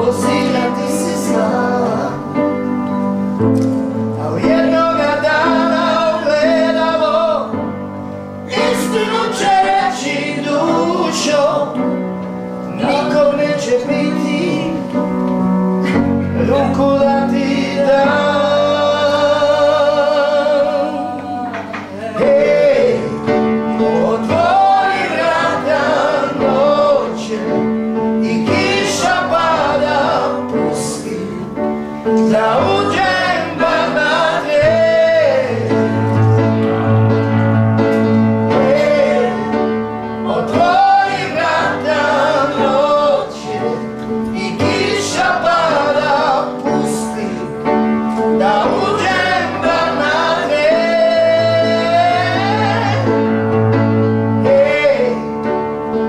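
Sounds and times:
man singing slow melody: 0.0s - 2.4s, 12.7s - 15.1s, 15.8s - 25.0s, 50.6s - 53.2s, 54.4s - 55.5s.

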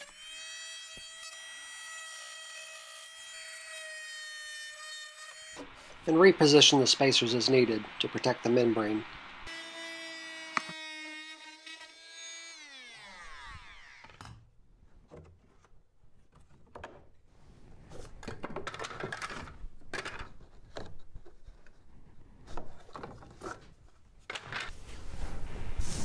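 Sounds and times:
oscillating multi-tool whine: 9.5s - 14.1s.

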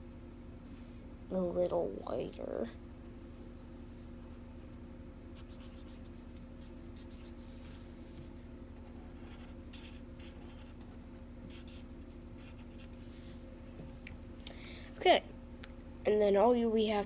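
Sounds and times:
steady low hum: 0.0s - 17.0s
marker scratching on paper: 5.4s - 7.9s, 8.9s - 13.0s.

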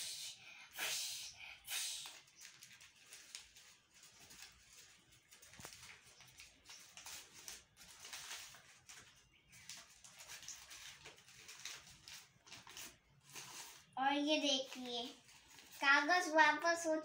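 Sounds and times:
paper rustling and crinkling: 2.0s - 16.3s.

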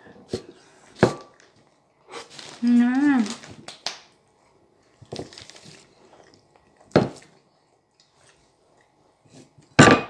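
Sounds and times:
soft chewing and mouth noises: 4.2s - 9.7s.

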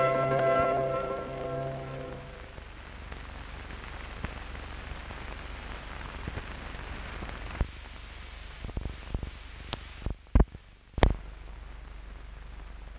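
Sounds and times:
low hum: 0.0s - 3.5s
film soundtrack hiss: 0.0s - 12.9s.

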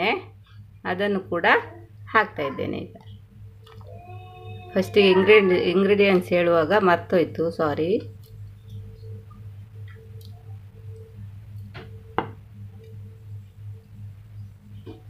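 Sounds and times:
low electrical hum: 0.0s - 15.0s
faint high tone: 3.8s - 6.2s, 10.0s - 11.2s.

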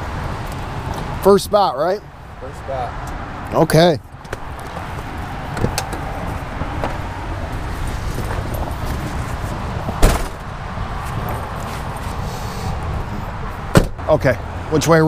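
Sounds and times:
truck door slamming: 6.6s - 7.1s, 9.9s - 10.5s, 13.7s - 14.1s.

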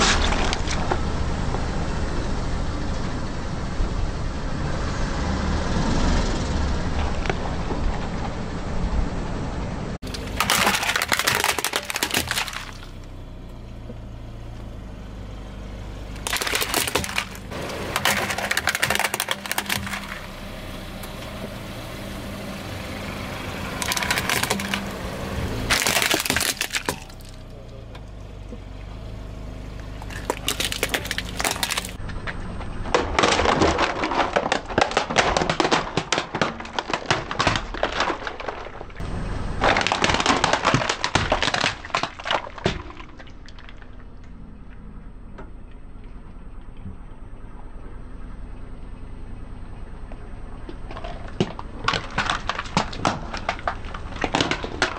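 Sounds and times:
low steady hum: 6.5s - 54.9s
plastic toys cracking and snapping: 10.0s - 13.0s, 16.2s - 20.2s, 23.8s - 25.0s, 25.7s - 27.4s, 30.0s - 39.0s, 39.6s - 44.0s, 50.9s - 54.9s.

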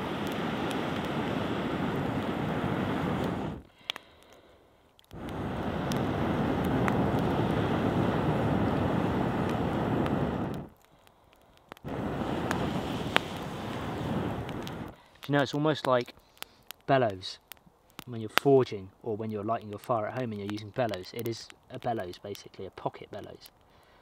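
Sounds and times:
air blowing through tube: 0.0s - 3.6s, 5.1s - 10.7s, 11.8s - 15.0s
fire crackling: 0.0s - 24.0s.

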